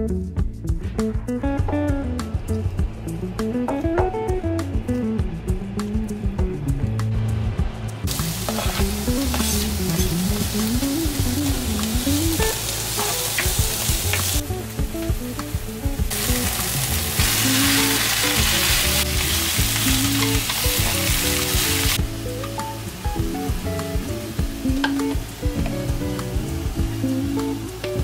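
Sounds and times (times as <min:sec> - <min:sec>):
background music: 0:00.0 - 0:28.0
spring onions sizzling in a pan: 0:08.1 - 0:28.0
spatula stirring and knocking pan: 0:08.4 - 0:10.3.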